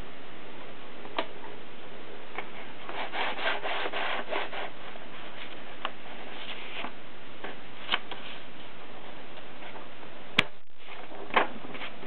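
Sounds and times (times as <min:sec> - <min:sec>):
paper rubbing against typewriter roller: 0:02.9 - 0:05.6.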